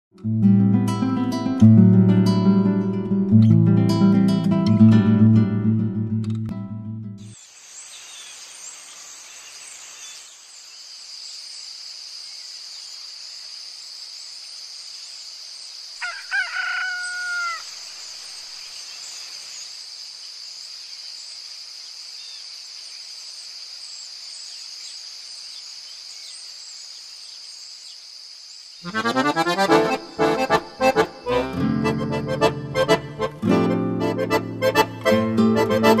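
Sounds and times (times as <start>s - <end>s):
high-pitched insect chorus: 7.3s - 29.0s
rooster crowing: 16.0s - 17.8s.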